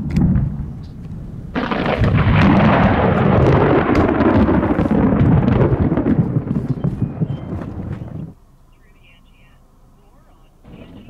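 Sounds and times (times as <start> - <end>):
thunder crack and rolling: 0.0 - 8.4.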